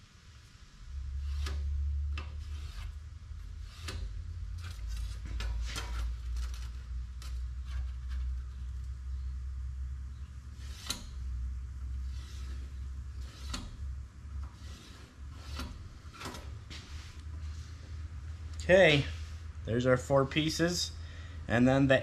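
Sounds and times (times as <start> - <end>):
low steady rumble: 0.0 - 22.0
steel straightedge scraping steel plate: 1.2 - 6.6, 10.5 - 11.3, 12.0 - 16.6.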